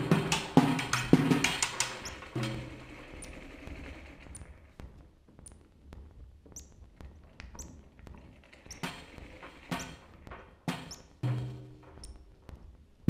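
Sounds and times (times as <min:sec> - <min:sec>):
stick taps on drums: 0:00.0 - 0:03.3.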